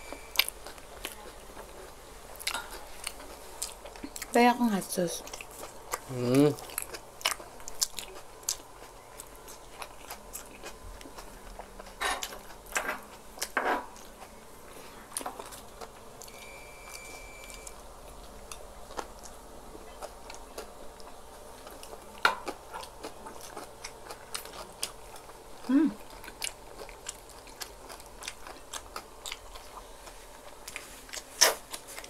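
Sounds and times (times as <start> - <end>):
people biting and chewing: 0.1 - 4.3, 5.2 - 14.4, 15.1 - 32.0.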